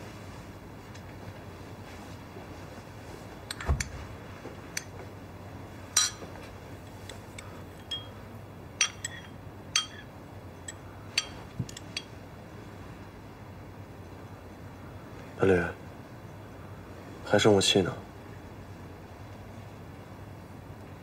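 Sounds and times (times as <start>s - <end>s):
spoon clinking porcelain bowl: 6.0s - 6.2s, 7.8s - 8.2s, 8.8s - 12.1s.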